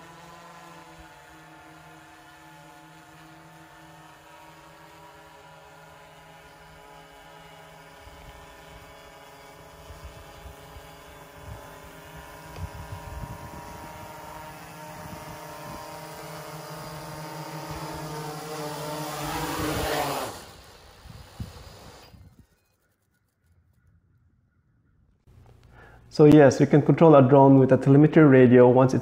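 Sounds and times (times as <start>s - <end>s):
drone motors humming: 0.0s - 23.1s, 25.3s - 29.0s
wind buffeting microphone: 9.8s - 16.2s.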